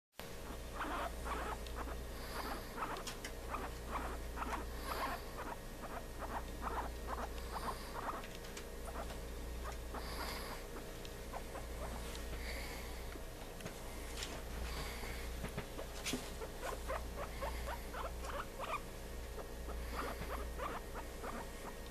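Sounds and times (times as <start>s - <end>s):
low electrical hum: 0.2s - 21.9s
guinea pig squeaks: 0.3s - 12.2s, 15.8s - 21.9s
guinea pig clicking: 0.4s - 12.0s, 16.6s - 18.8s.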